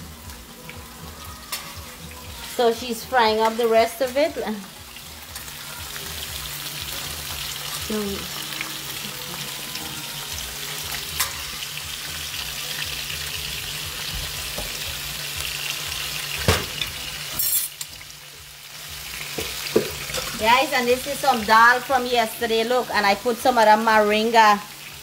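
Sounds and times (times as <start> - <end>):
fish sizzling in oil: 0.0 - 25.0.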